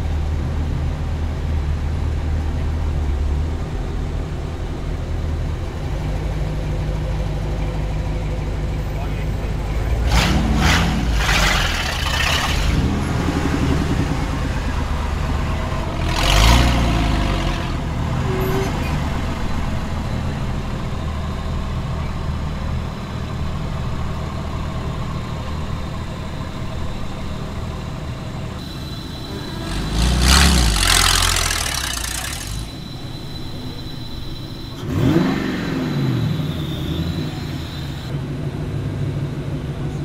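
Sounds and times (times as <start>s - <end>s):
vehicle engines driving past: 0.0s - 40.0s
vehicle revving past: 9.9s - 20.1s, 29.0s - 32.9s, 34.8s - 38.1s.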